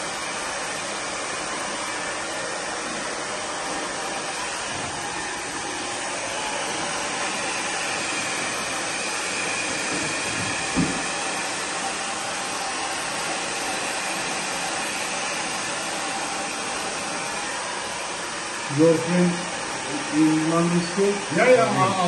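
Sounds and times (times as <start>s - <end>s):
hair dryer blowing: 0.0s - 22.0s
low thump: 10.4s - 11.1s.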